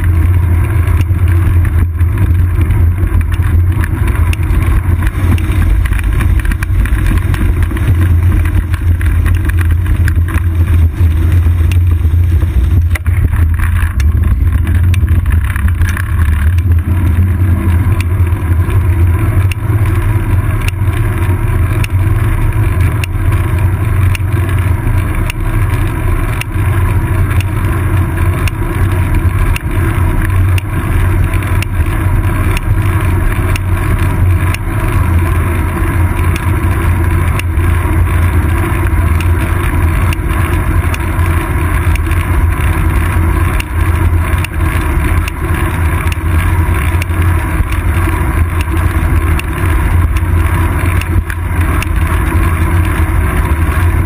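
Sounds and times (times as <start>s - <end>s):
wind and road vibration rumble: 0.0s - 54.0s
faint ticks: 18.9s - 54.0s.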